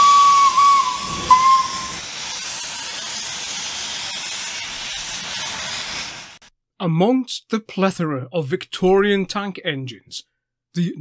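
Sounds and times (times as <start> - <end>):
steam locomotive whistle: 0.0 - 2.1
steam hissing: 0.0 - 6.5.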